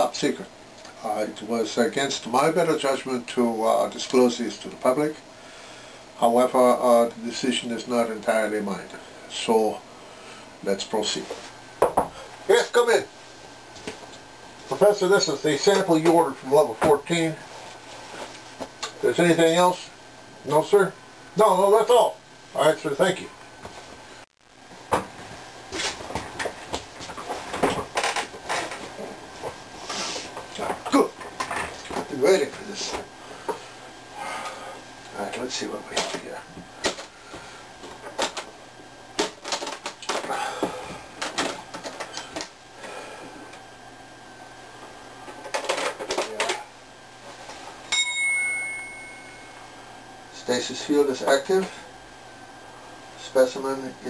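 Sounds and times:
knocks and rustles of movement: 24.7s - 33.7s, 35.9s - 42.6s
ringing multi-pitched tone: 47.9s - 49.7s.

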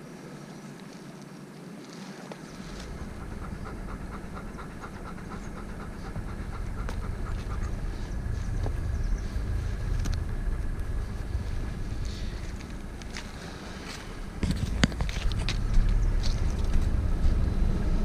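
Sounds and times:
wind rumble on microphone: 1.8s - 18.0s
dog panting fast: 2.6s - 9.5s.

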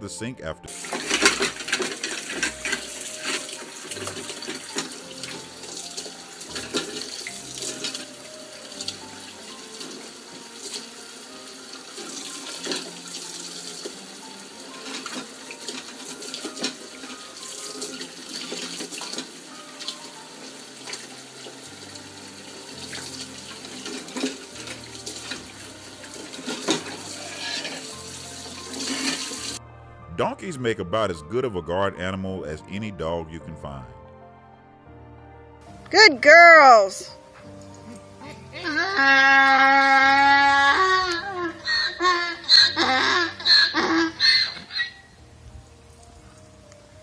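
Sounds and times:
soft background music: 0.0s - 47.0s
water running from tap into sink: 0.7s - 29.6s.

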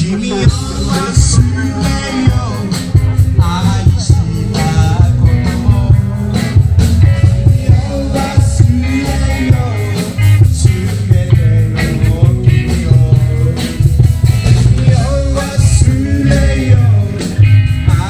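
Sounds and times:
live rock band: 0.0s - 18.0s
person singing: 0.0s - 18.0s.

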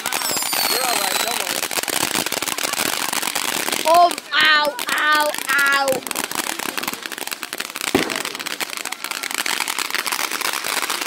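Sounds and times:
fireworks crackling: 0.0s - 11.0s
child calling out: 3.9s - 6.0s
firework pop: 7.9s - 8.9s.

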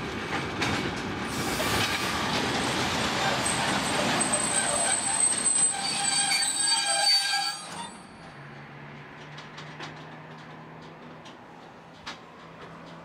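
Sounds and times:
train wagons squealing: 1.4s - 8.6s.

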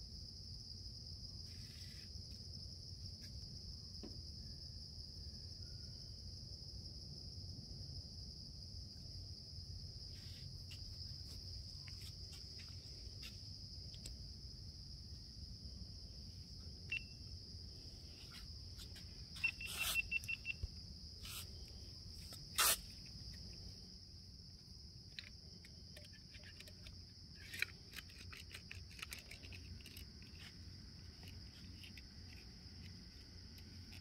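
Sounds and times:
forest insects droning: 0.0s - 34.0s
short chirps and clicks: 16.9s - 17.2s, 19.4s - 20.7s.

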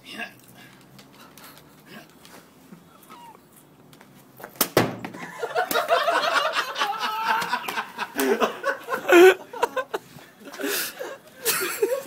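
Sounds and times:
people laughing: 5.2s - 12.0s.

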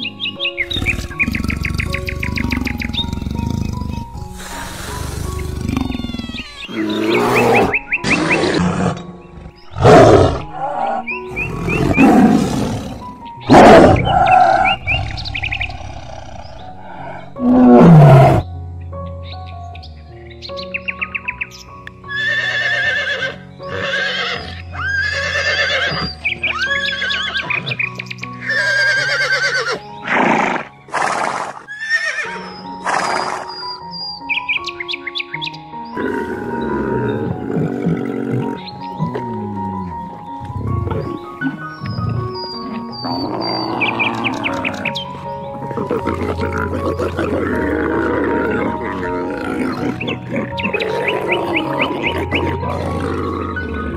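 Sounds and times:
background music: 0.0s - 53.9s
harsh animal calls: 0.6s - 18.4s, 35.9s - 53.9s
horse whinnying: 4.4s - 15.1s, 22.1s - 27.8s, 28.4s - 33.5s, 40.5s - 45.0s.

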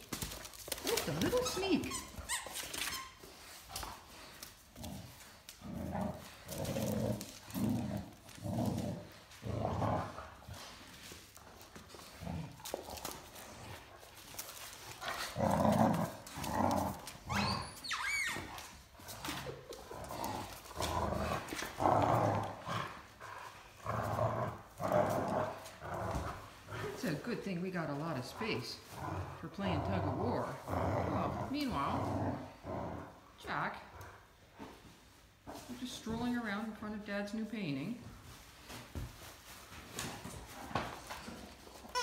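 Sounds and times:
puppy growling: 0.1s - 2.8s, 3.8s - 10.8s, 11.8s - 27.2s, 28.0s - 34.2s.

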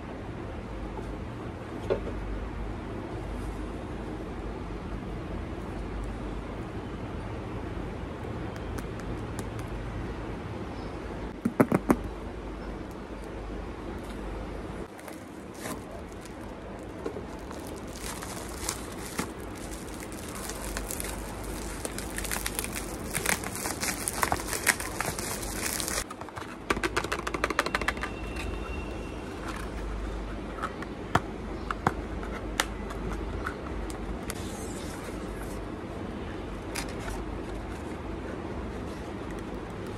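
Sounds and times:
cardboard being handled: 14.9s - 26.1s
plastic packaging crinkling and tearing: 14.9s - 26.1s.

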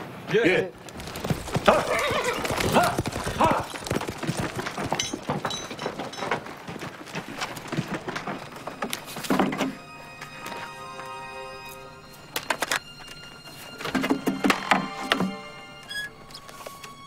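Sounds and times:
horse hooves clattering: 0.8s - 11.1s.

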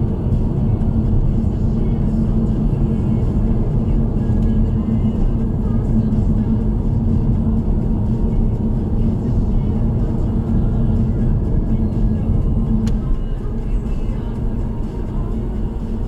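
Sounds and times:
car driving on road: 0.0s - 16.0s
tyre and engine noise: 0.0s - 16.0s.

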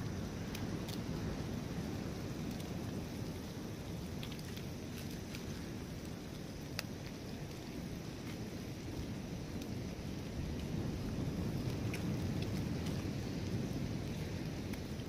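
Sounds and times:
ocean surf rumble: 0.0s - 15.0s.

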